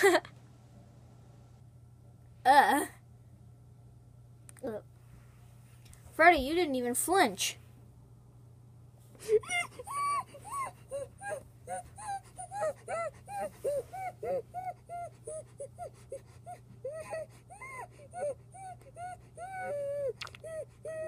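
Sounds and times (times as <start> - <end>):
person whimpering: 2.5 - 3.0, 9.2 - 21.0.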